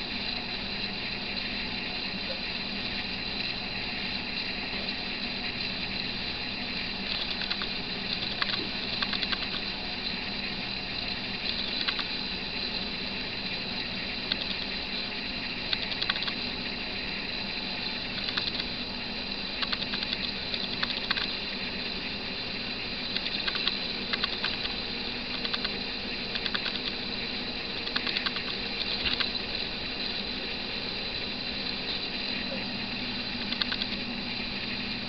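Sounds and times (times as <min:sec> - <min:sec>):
camera hum and hiss: 0:00.0 - 0:35.0
short ticking clicks: 0:07.1 - 0:09.7, 0:11.4 - 0:12.1, 0:14.3 - 0:14.8, 0:15.7 - 0:16.4, 0:18.1 - 0:18.7, 0:19.6 - 0:21.4, 0:23.1 - 0:25.8, 0:26.4 - 0:27.0, 0:27.8 - 0:29.4, 0:33.4 - 0:34.0.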